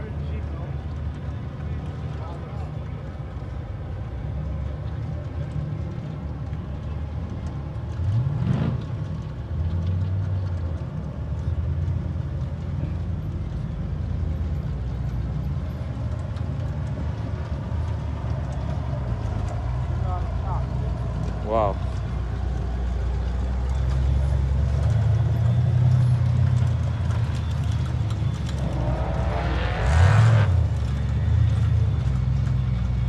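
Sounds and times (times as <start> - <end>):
off-road vehicle engine revving: 8.0 - 9.2, 16.4 - 33.0.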